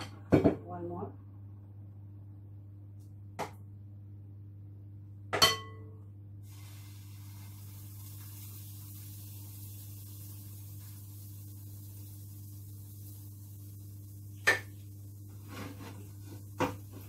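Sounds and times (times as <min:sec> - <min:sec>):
batter sizzling in frying pan: 0:06.4 - 0:17.0.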